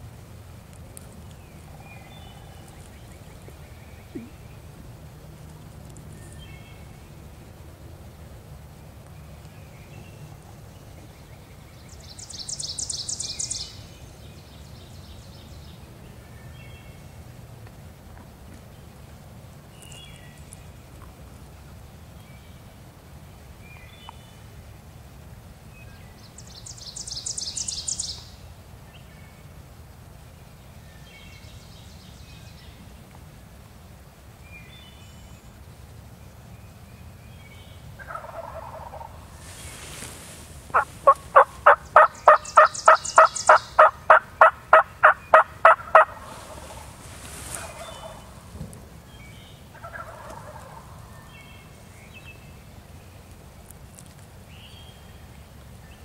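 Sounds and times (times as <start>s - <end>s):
turkey yelps: 38.0s - 39.1s, 40.7s - 46.9s, 47.5s - 48.4s, 49.7s - 51.0s
turkeys gobbling: 38.0s - 48.5s, 49.7s - 51.2s.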